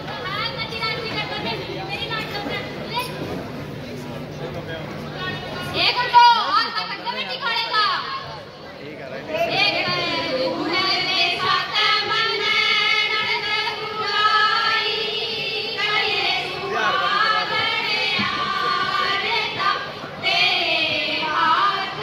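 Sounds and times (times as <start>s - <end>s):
women singing folk song: 9.5s - 22.0s.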